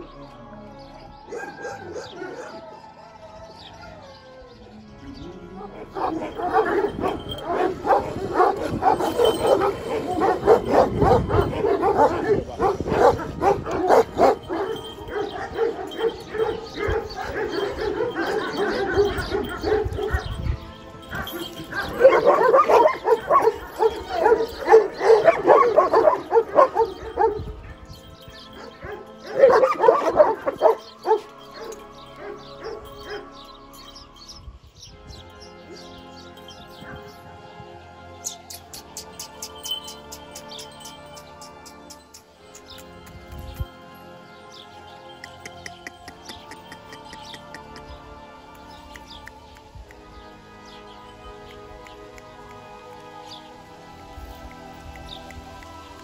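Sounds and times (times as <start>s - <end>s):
soft background music: 0.0s - 56.0s
dog barking rapidly: 5.9s - 20.4s, 21.1s - 27.4s.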